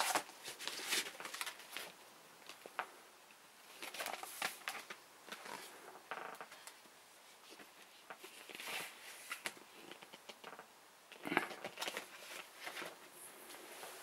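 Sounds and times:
cardboard and paper rustling: 0.0s - 2.8s, 3.7s - 5.8s, 7.4s - 10.1s, 11.4s - 14.0s.

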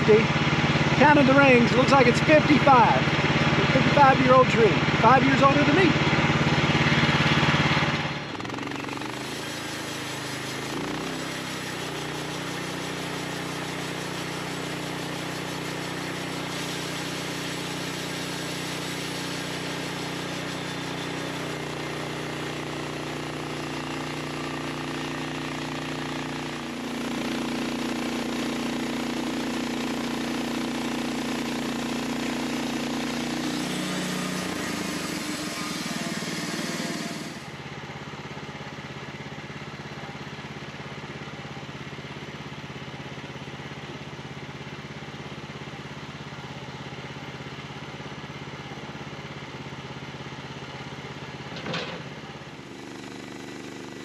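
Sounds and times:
sawmill engine running: 0.0s - 54.0s
band blade cutting log: 8.5s - 22.6s, 30.1s - 37.6s.

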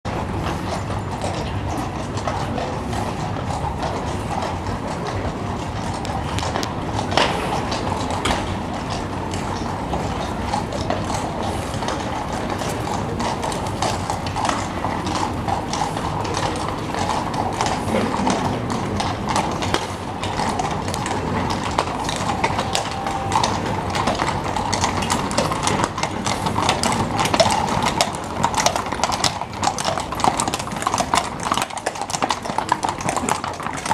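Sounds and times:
horse hooves on cobblestones: 0.1s - 33.9s.

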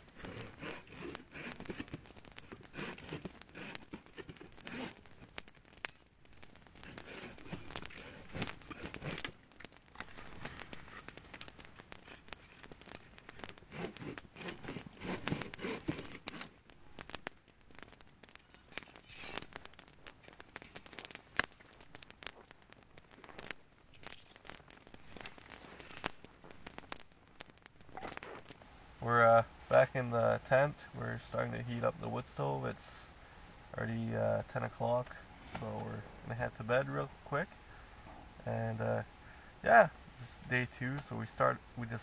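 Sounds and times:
rustling and scraping: 0.0s - 16.7s, 17.7s - 27.0s, 27.8s - 28.7s
campfire crackling and popping: 0.0s - 42.0s.

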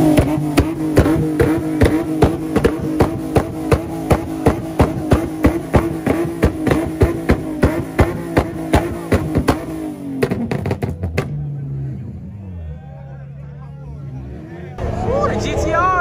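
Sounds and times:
exhaust pops: 0.0s - 11.6s
car engine revving high: 0.0s - 15.1s.

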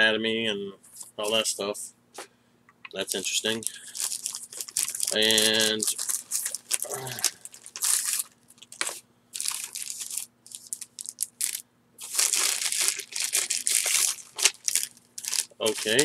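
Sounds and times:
packaging crinkling: 3.0s - 16.0s.

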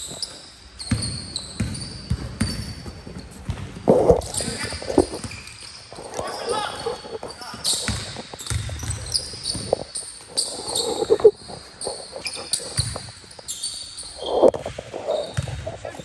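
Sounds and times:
sneakers squeaking on court: 0.0s - 16.0s
basketballs bouncing on gym floor: 0.8s - 5.4s, 7.5s - 9.8s, 12.7s - 13.1s, 14.7s - 16.0s.

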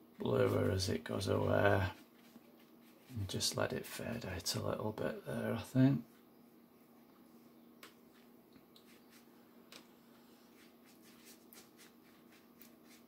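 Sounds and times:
low steady hum: 0.0s - 13.0s
brush strokes on paper: 0.4s - 4.3s, 6.9s - 13.0s.

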